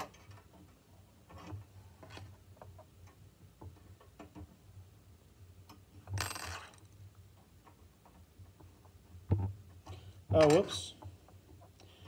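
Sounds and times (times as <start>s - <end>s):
small metal parts clicking: 5.7s - 7.0s.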